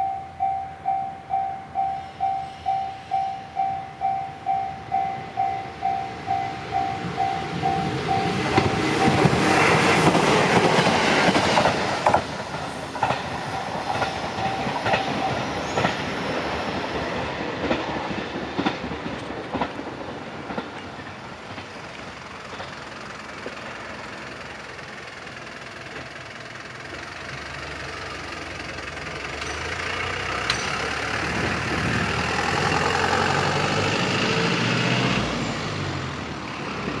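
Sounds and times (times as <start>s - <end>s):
level-crossing warning bell: 0.0s - 9.8s, 13.0s - 17.8s, 28.1s - 31.5s
train wheels clattering over rails: 7.1s - 36.0s
truck engine: 18.9s - 37.0s.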